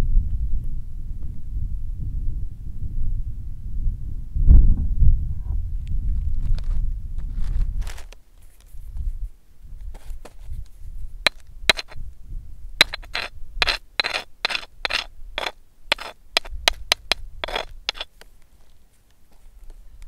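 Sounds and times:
wind rumble on microphone: 0.0s - 18.1s
fingers scraping on rough rock: 9.9s - 12.0s, 12.8s - 19.4s.

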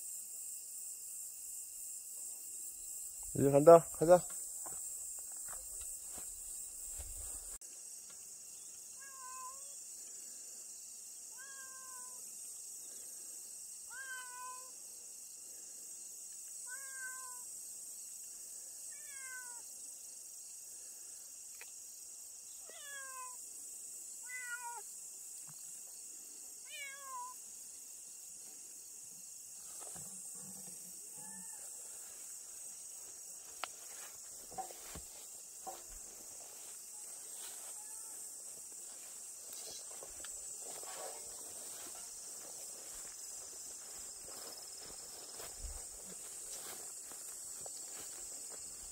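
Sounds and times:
faint clicks and rustles in grass: 4.0s - 8.8s, 29.1s - 48.9s
cat meowing: 9.0s - 9.7s, 11.3s - 12.2s, 13.9s - 14.7s, 16.7s - 17.4s, 19.0s - 19.6s, 22.7s - 23.4s, 24.2s - 24.8s, 26.7s - 27.4s.

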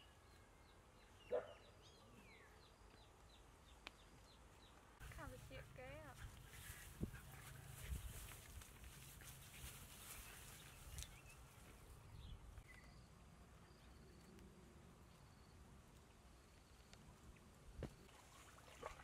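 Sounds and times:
puppies rustling in dry grass: 5.0s - 12.6s.

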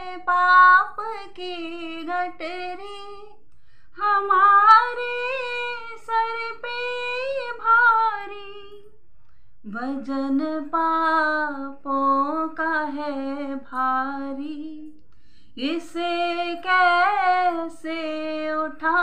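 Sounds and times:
woman singing unaccompanied: 0.0s - 3.4s, 4.0s - 8.9s, 9.7s - 15.0s, 15.6s - 19.0s.

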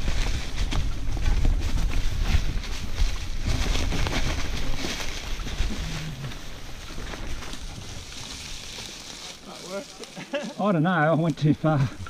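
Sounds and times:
wind rushing over microphone: 0.0s - 8.1s
bike tyres on dirt: 0.0s - 12.0s.

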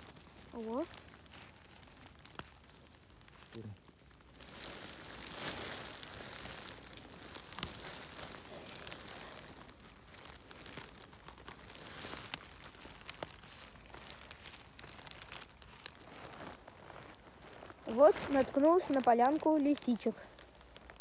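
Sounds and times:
footsteps through undergrowth: 0.0s - 21.0s
twigs snapping: 0.0s - 21.0s.

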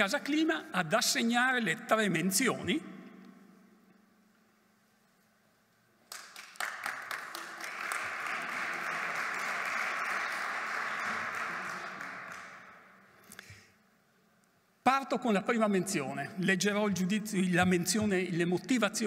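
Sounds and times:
audience applauding: 6.1s - 12.9s.

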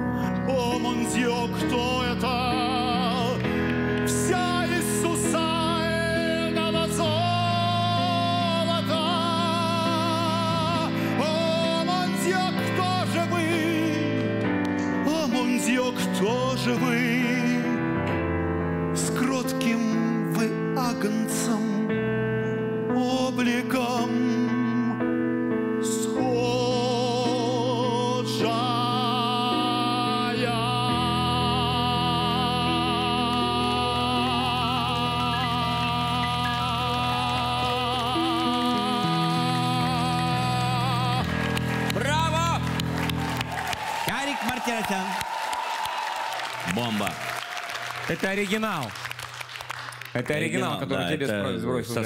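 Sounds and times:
man singing with vibrato: 0.0s - 18.2s, 18.9s - 42.6s
sustained keyboard chords: 0.0s - 43.7s.

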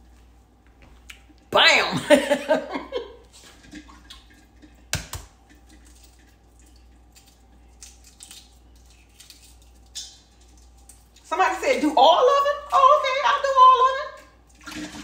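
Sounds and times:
water dripping and splashing: 3.4s - 11.4s, 14.1s - 15.0s
egg knocking: 4.9s - 5.4s.

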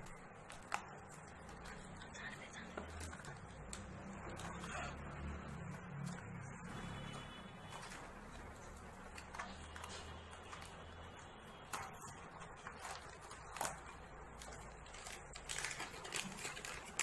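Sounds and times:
paper and packaging rustling: 0.0s - 17.0s.

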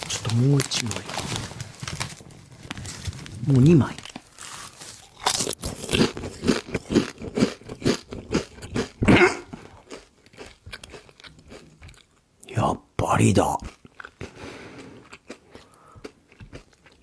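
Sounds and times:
potato chips crunching: 0.0s - 12.2s.

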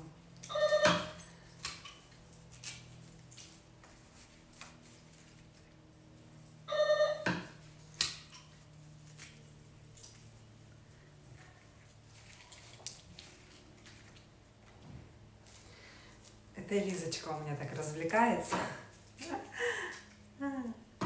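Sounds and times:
electronic doorbell tone: 0.4s - 1.2s, 6.7s - 7.5s.

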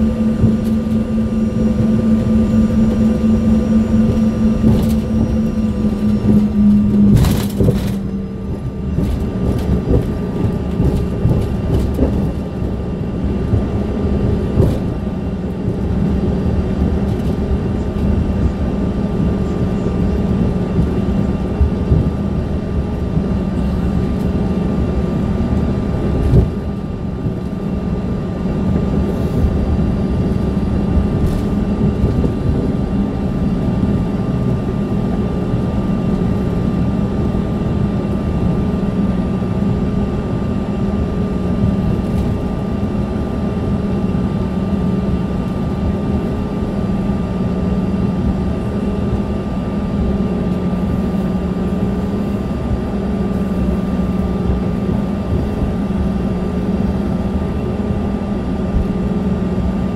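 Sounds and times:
thin high whine: 0.0s - 16.6s
airliner engines idling drone: 0.0s - 59.9s.

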